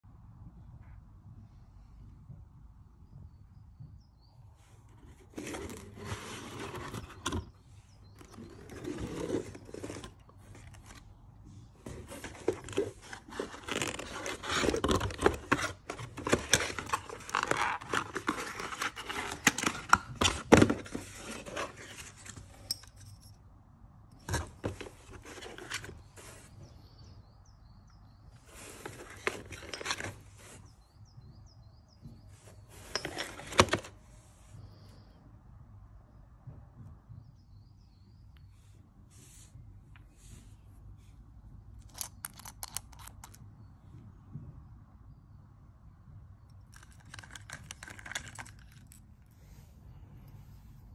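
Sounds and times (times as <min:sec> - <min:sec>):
cardboard scraping and rustling: 0:04.9 - 0:22.7, 0:24.2 - 0:26.8, 0:28.4 - 0:30.8, 0:32.4 - 0:34.2.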